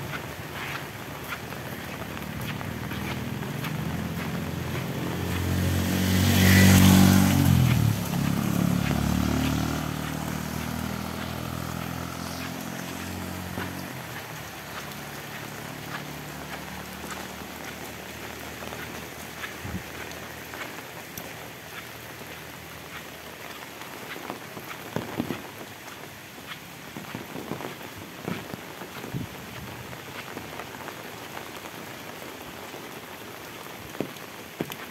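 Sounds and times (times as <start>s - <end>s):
heavy rain on road and foliage: 0.0s - 34.9s
vehicle engine passing: 0.6s - 20.4s.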